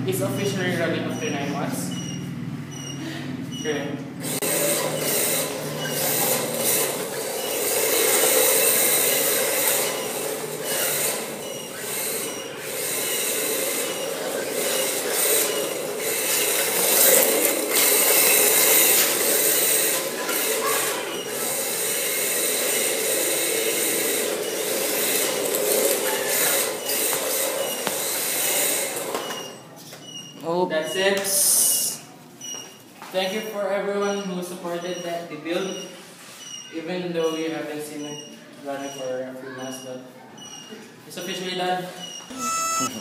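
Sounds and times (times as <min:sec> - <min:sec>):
drift car tyres scrubbing floor: 0:04.3 - 0:29.4.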